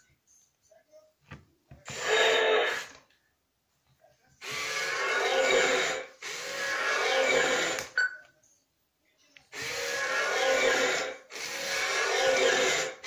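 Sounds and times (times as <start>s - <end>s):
toy robot gear motors whirring: 9.5s - 13.0s.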